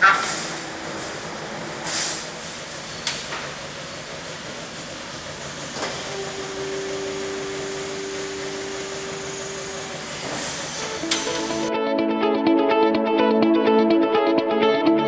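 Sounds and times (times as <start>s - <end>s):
machinery hiss: 0.0s - 11.7s
pallet changer clack: 0.0s - 11.7s
two-note motor whine: 0.0s - 11.7s.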